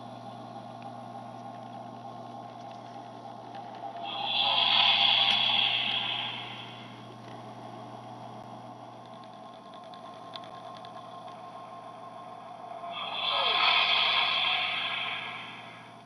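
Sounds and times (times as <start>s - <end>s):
electronic low hum: 0.0s - 16.0s
whooshing swell with falling sweep: 4.0s - 6.9s, 12.6s - 16.0s.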